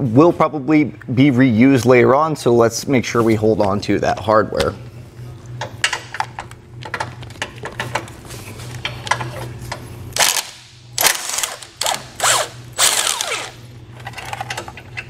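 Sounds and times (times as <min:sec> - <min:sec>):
impact wrench rattling: 0:10.2 - 0:15.0.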